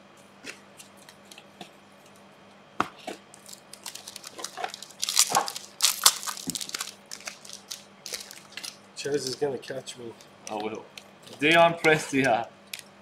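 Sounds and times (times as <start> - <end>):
cards being shuffled: 3.4 - 9.5.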